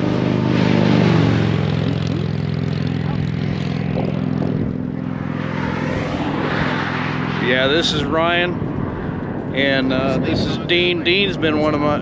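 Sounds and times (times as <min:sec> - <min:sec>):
motorcycle passing by: 0:00.0 - 0:12.0
idling motorcycle engines: 0:01.1 - 0:05.3, 0:07.4 - 0:12.0.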